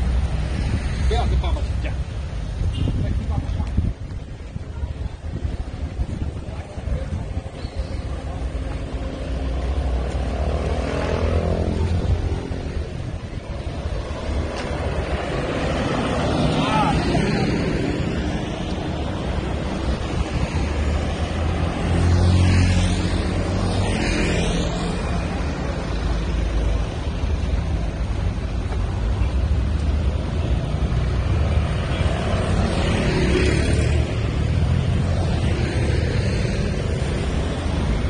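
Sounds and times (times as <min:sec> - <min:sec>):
street traffic: 0:00.0 - 0:38.0
vehicles passing: 0:00.0 - 0:38.0
wind buffeting microphone: 0:02.5 - 0:09.1.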